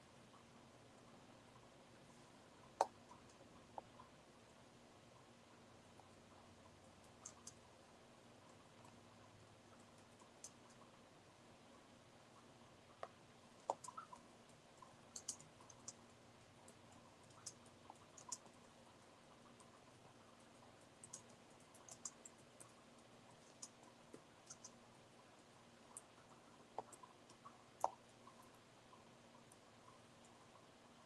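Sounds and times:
quiet room hum: 0.0s - 31.0s
mouse clicks: 2.7s - 4.0s, 7.0s - 7.6s, 13.0s - 16.1s, 16.7s - 18.6s, 21.0s - 24.8s, 25.9s - 28.5s.

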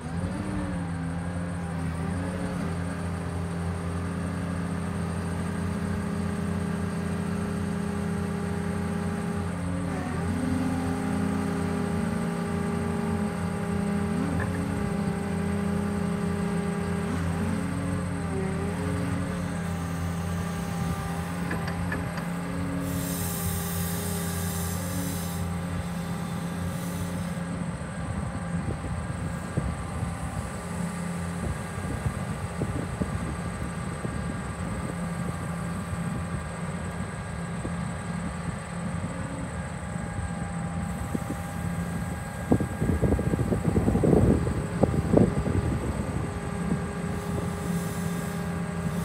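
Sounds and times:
excavator diesel engine running: 0.0s - 49.0s
hydraulic hiss: 21.6s - 27.6s, 47.1s - 49.0s.

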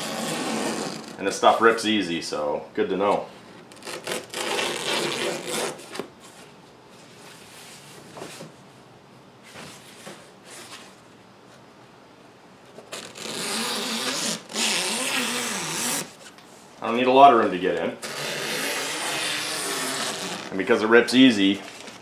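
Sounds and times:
fabric ripping: 0.0s - 1.2s, 3.7s - 6.0s, 12.8s - 16.2s, 18.0s - 20.6s.

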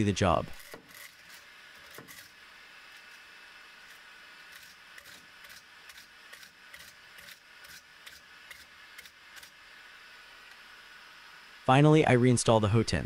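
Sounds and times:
wire brush scrubbing metal: 0.0s - 9.6s.

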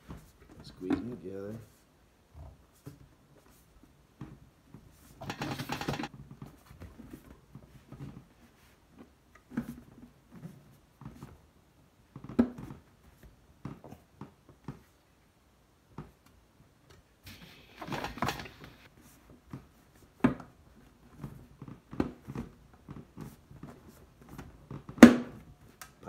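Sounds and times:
sheet metal clicks and knocks: 5.2s - 6.1s.

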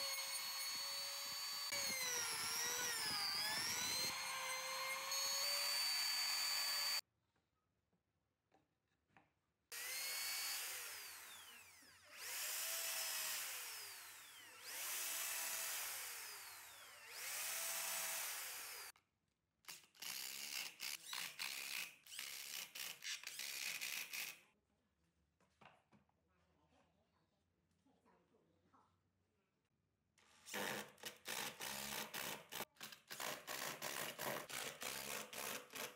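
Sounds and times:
electric drill boring into wood: 0.0s - 7.0s, 9.7s - 18.9s, 33.2s - 35.9s.

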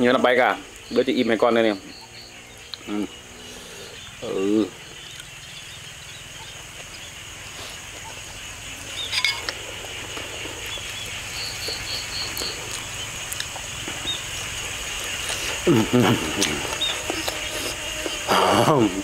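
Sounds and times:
crickets chirping: 0.0s - 19.0s.

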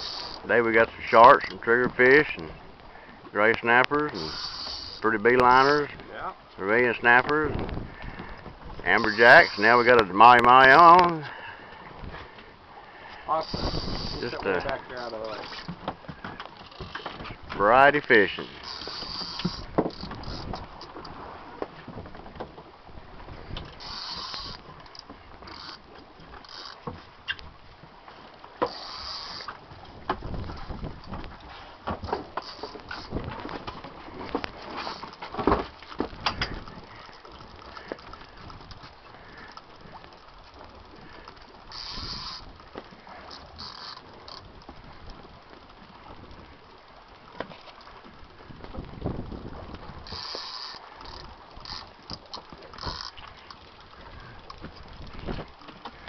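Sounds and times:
fishing reel ratcheting: 0.0s - 1.1s, 4.1s - 5.9s, 9.0s - 10.1s, 13.3s - 15.7s, 18.0s - 21.2s, 23.6s - 27.4s, 28.6s - 31.2s, 32.0s - 33.2s, 36.2s - 45.2s, 49.7s - 55.2s
water around boat: 0.0s - 56.0s
wind noise: 7.3s - 9.2s, 13.4s - 14.9s, 29.2s - 40.0s, 41.8s - 42.6s, 48.0s - 51.8s, 54.0s - 55.6s.

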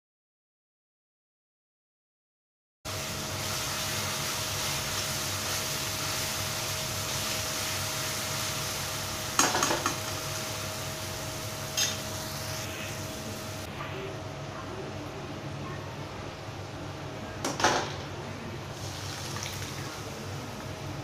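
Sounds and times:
masala sizzling in oil: 2.9s - 13.7s, 18.7s - 21.0s
metal spatula scraping a pan: 11.7s - 12.7s.

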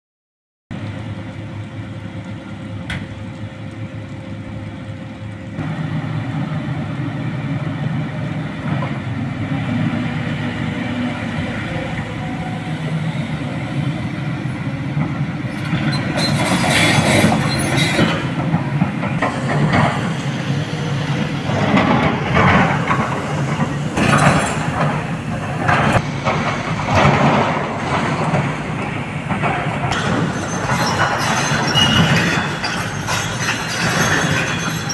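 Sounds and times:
excavator diesel engine running: 0.7s - 34.9s.

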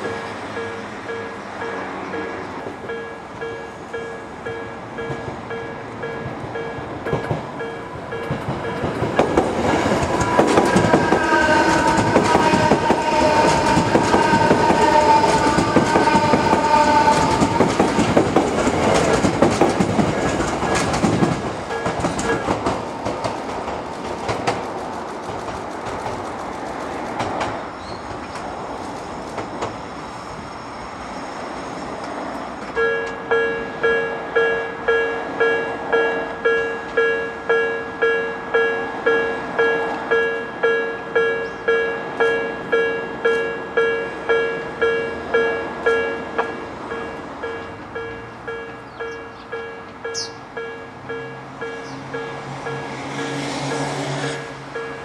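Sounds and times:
train whine: 0.0s - 55.0s
train wheels clattering: 5.0s - 29.8s.

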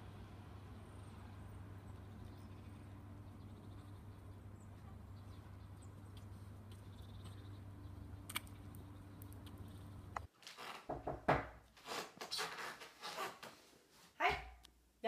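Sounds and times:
low hum: 0.0s - 10.3s.

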